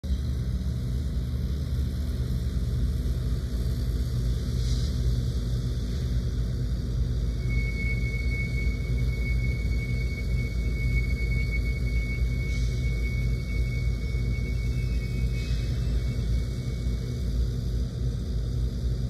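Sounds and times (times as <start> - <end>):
locomotive engine rumble: 0.0 - 19.0
thin high squeal: 7.4 - 17.2.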